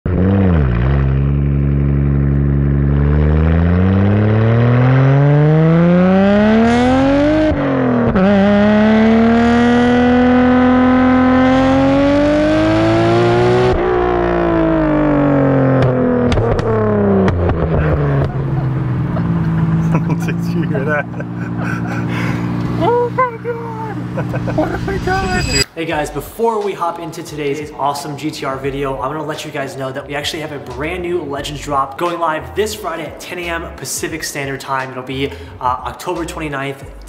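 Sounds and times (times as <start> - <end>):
car engine revving: 0.1 - 25.7
exhaust pops: 13.7 - 22.8.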